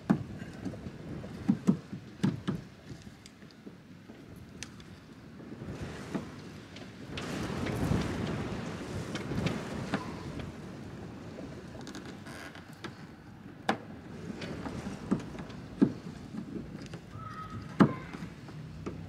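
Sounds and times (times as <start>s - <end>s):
wind buffeting microphone: 4.3s - 12.2s.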